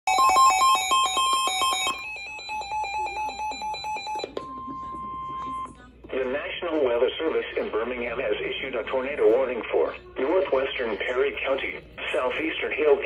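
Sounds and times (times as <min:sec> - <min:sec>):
steady alarm tone: 0:00.1 - 0:05.7.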